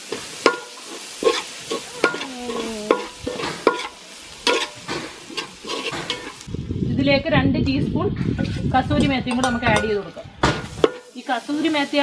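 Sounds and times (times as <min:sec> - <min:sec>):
food sizzling in pot: 0:00.0 - 0:06.8, 0:08.4 - 0:12.0
spoon clinking on pot: 0:09.3 - 0:10.0.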